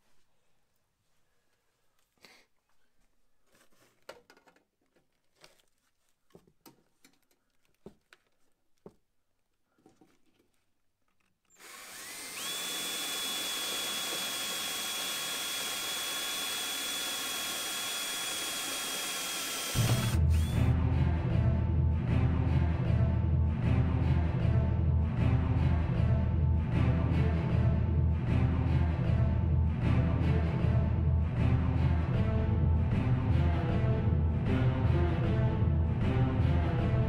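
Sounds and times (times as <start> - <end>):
faint handling taps and clicks: 3.5 - 11.4
cordless drill whining: 11.4 - 20.7.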